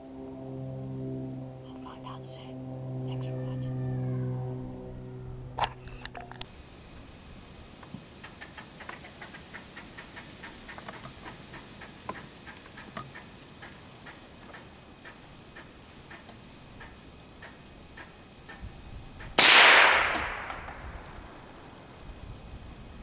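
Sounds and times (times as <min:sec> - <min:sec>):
faint outdoor hiss: 0:00.0 - 0:23.0
light ticking and clicking: 0:07.8 - 0:19.4.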